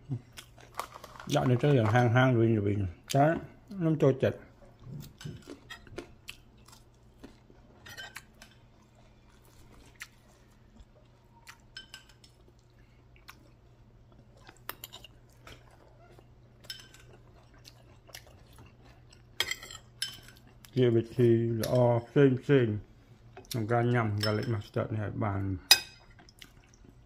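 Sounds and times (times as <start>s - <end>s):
person chewing: 0.2s - 1.2s, 4.6s - 20.8s, 26.0s - 27.0s.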